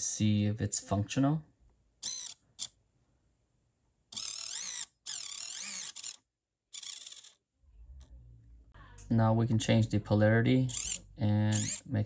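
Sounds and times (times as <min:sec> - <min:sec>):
small motor whining through gear: 0:02.0 - 0:02.7, 0:04.2 - 0:06.2, 0:06.8 - 0:07.4, 0:10.7 - 0:11.0, 0:11.6 - 0:11.8.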